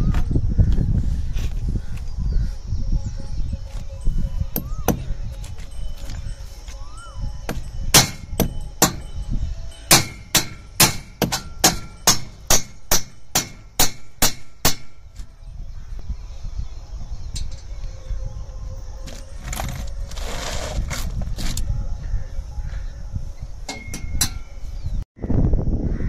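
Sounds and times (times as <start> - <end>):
hammer striking metal: 7.5 - 9.2, 9.8 - 15.0, 23.7 - 24.5.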